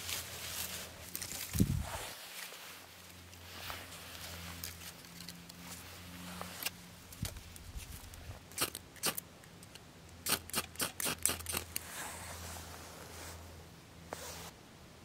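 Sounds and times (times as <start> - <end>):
dry twigs snapping: 1.0 - 1.8.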